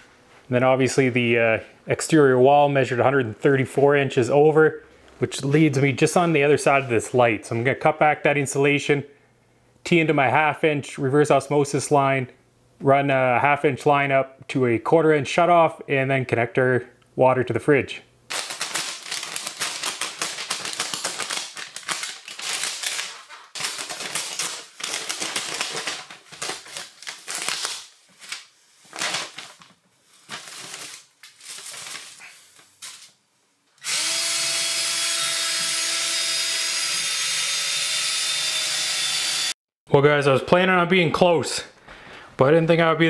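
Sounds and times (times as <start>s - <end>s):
plastic and insulation crinkling and tearing: 18.3s - 33.2s
drill running: 33.8s - 39.6s.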